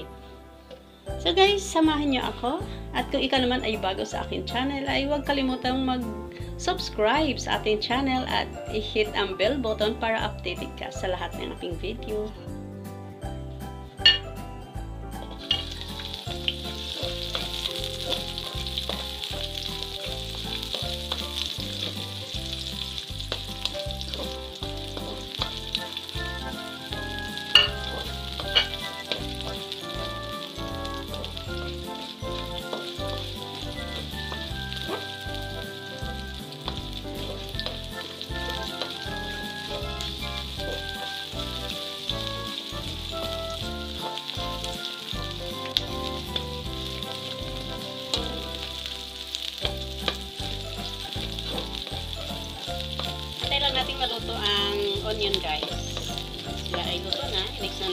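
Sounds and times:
onions sizzling in oil: 1.1 - 12.3, 13.6 - 57.9
spatula knocking wok: 15.4 - 44.7, 49.4 - 57.9.

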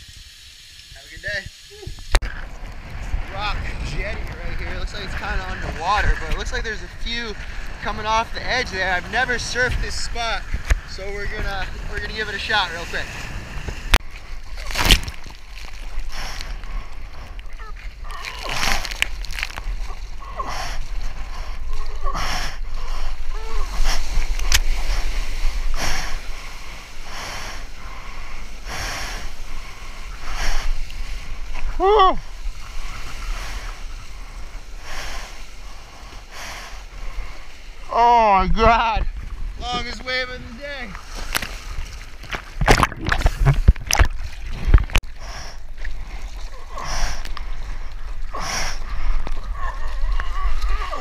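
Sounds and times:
water rushing and splashing: 0.0 - 51.0
wind rumble on microphone: 1.7 - 51.0
sharp knocks of water: 41.2 - 45.2.

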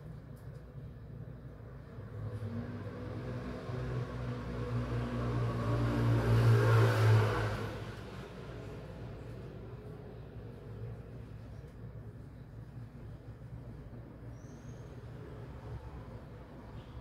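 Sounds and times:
vehicle engine passing by: 2.0 - 9.4.

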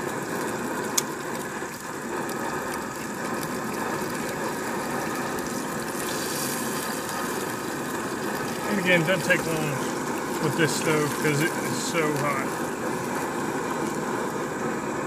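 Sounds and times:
camp stove burning with loud rush: 0.0 - 15.0
fish frying in a pan: 0.0 - 15.0.

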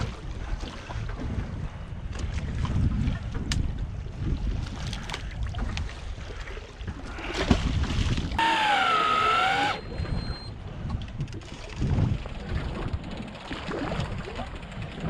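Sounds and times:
wind and water wash: 0.0 - 15.0
brief wavering high tone: 8.4 - 10.5.

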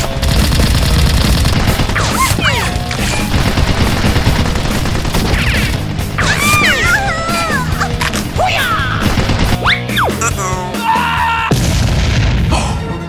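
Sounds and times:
rapid gunfire: 0.0 - 10.0.

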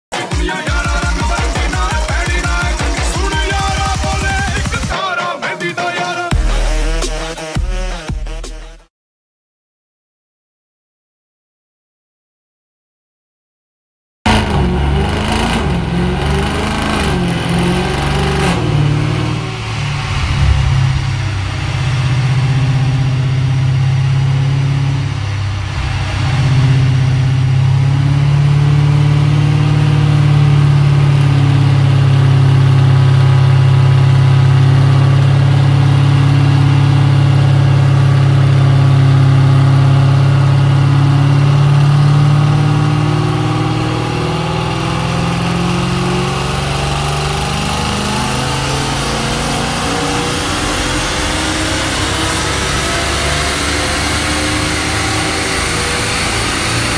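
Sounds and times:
car engine deep exhaust drone: 14.3 - 56.9.

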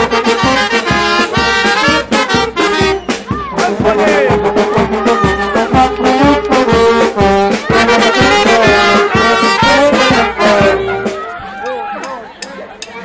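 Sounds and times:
street brass band playing: 0.0 - 13.0.

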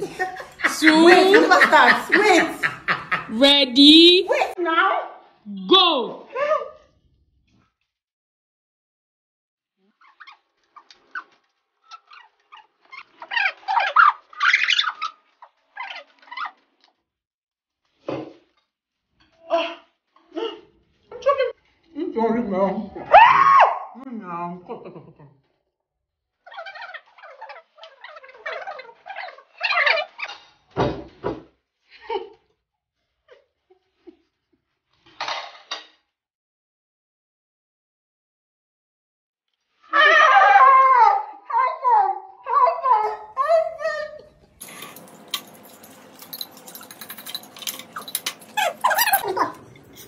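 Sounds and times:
people grunting and squealing: 0.0 - 3.5
noodle slurping: 9.9 - 17.0.

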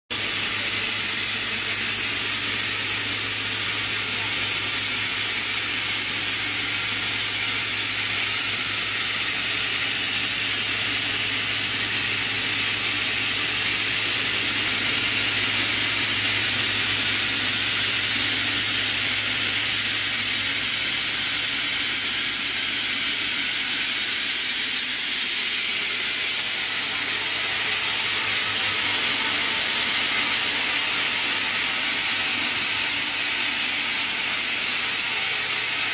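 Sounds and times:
spinning line hissing: 0.2 - 35.9.

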